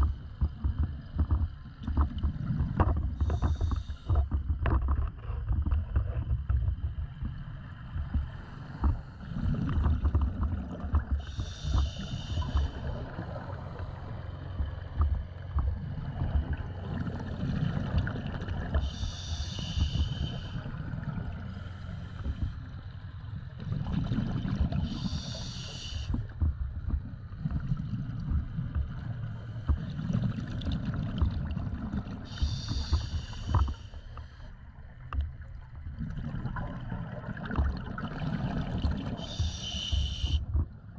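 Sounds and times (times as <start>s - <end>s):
steady low rumble: 0.0s - 40.9s
diver breathing through regulator: 3.2s - 4.3s, 11.2s - 13.3s, 18.7s - 20.8s, 21.5s - 22.8s, 24.7s - 26.4s, 32.2s - 34.6s, 39.1s - 40.5s.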